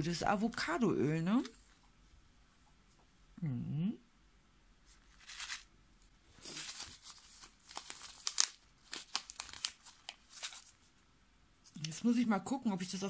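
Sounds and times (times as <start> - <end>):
plastic sachet crinkling: 5.1 - 5.7, 6.4 - 10.9.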